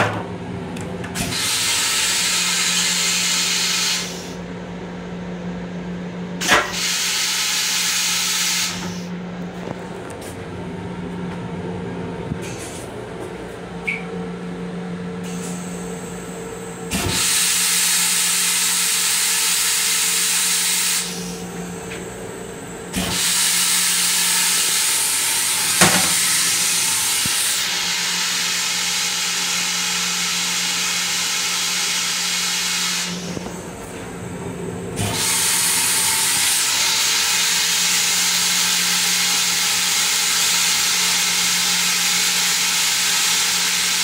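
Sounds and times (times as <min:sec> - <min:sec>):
railcar low hum: 0:08.7 - 0:17.0, 0:19.8 - 0:28.2, 0:33.0 - 0:36.4.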